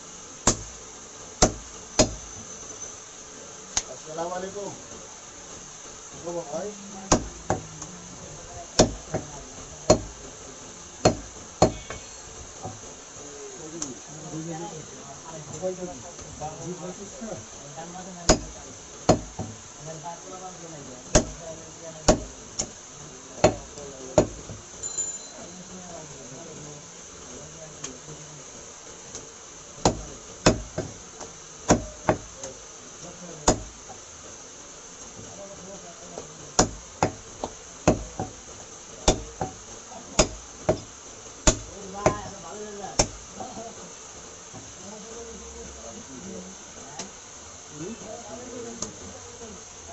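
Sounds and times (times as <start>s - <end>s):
cleaver chopping meat on wood: 0.4s - 0.7s, 1.4s - 2.2s, 7.1s - 7.7s, 8.8s - 10.2s, 11.0s - 11.9s, 18.3s - 19.6s, 21.1s - 21.4s, 22.0s - 22.8s, 23.4s - 24.6s, 29.8s - 32.3s, 33.4s - 33.7s, 36.2s - 38.4s, 39.0s - 39.6s, 40.2s - 42.3s, 43.0s - 43.6s.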